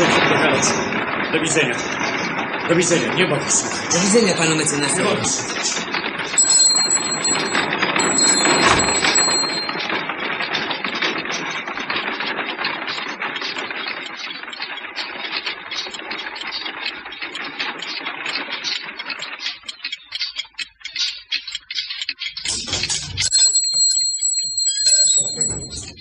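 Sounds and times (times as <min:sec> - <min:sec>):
carts clattering along street: 0:00.0 - 0:26.0
small bell ringing: 0:06.3 - 0:09.9, 0:23.2 - 0:26.0.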